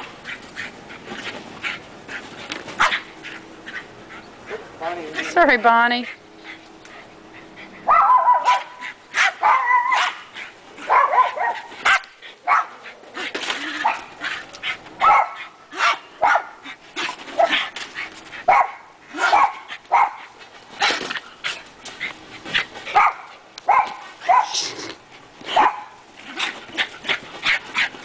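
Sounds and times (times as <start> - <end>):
small dog barking: 2.8 - 3.1, 7.8 - 12.8, 15.0 - 16.6, 18.5 - 21.0, 22.9 - 24.7, 25.5 - 26.0.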